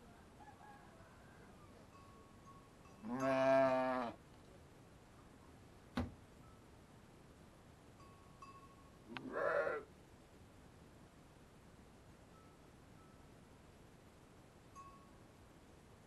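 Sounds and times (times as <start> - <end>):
sheep bleating: 3.1 - 4.2, 9.2 - 9.9.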